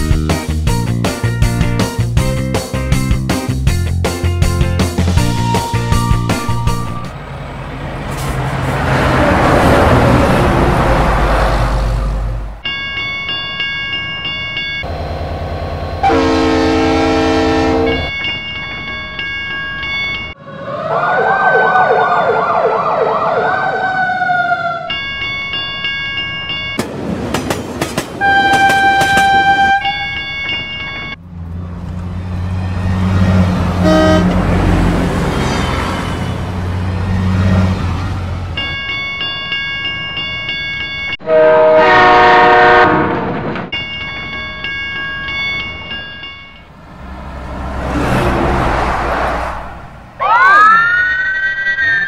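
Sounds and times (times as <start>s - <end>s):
train rumbling past: 1.7s - 12.7s, 14.8s - 18.1s, 26.8s - 38.8s, 46.5s - 50.2s
level crossing warning tone: 5.3s - 7.3s, 12.6s - 26.8s, 28.2s - 31.2s
train horn blasts: 16.0s - 18.1s, 28.2s - 30.2s, 33.8s - 34.5s, 41.2s - 43.3s.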